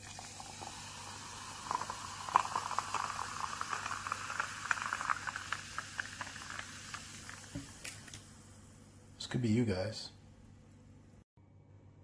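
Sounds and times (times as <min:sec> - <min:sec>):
soda fizzing pour over ice: 0:00.0 - 0:08.0.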